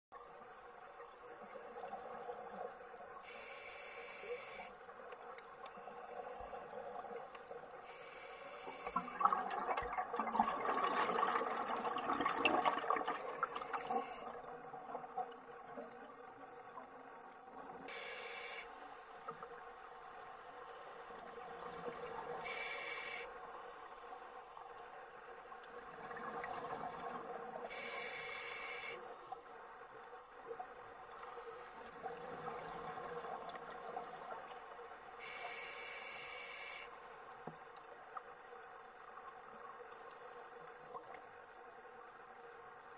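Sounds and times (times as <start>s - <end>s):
regulator inhale hiss: 3.2s - 4.9s, 7.8s - 9.2s, 13.2s - 14.3s, 17.9s - 19.3s, 22.4s - 23.8s, 27.7s - 29.4s, 31.2s - 32.0s, 35.2s - 37.2s
exhaled bubbles gurgling: 8.9s - 17.8s.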